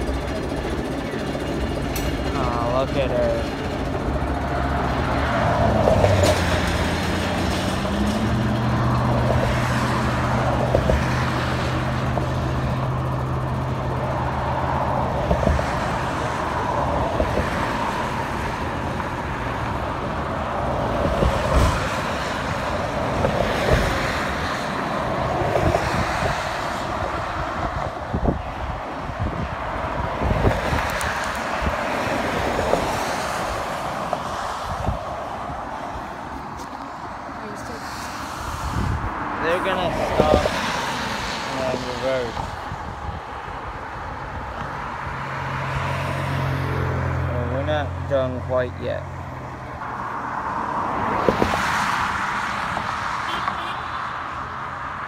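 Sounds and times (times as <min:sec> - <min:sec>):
train wheels clacking on rails: 0:00.0 - 0:04.4
diesel locomotive engine drone: 0:00.0 - 0:45.5.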